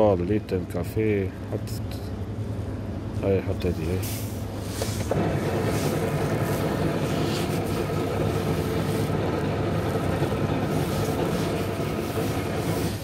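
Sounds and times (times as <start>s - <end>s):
coffee machine brewing: 4.8s - 13.0s.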